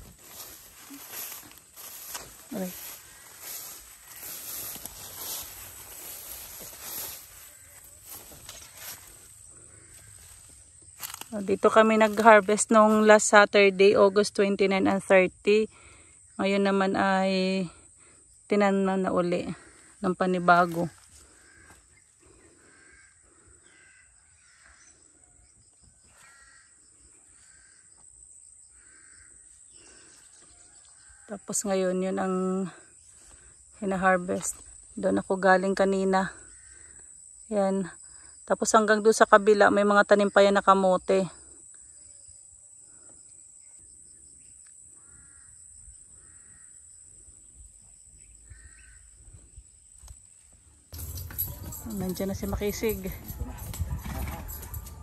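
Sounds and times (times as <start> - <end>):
faint crow cawing: 0.3 - 10.6, 19.6 - 20.0, 20.9 - 25.2, 26.0 - 28.0, 28.7 - 30.2, 36.4 - 37.1, 44.9 - 46.8, 48.5 - 49.1.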